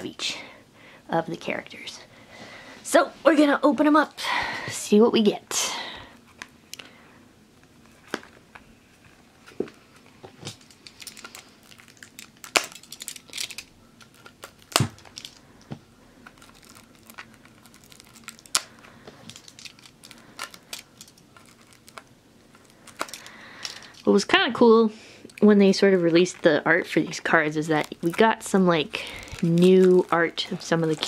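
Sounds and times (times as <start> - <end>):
plastic shrink-wrap crinkling: 9.9 - 24.4, 25.3 - 31.0.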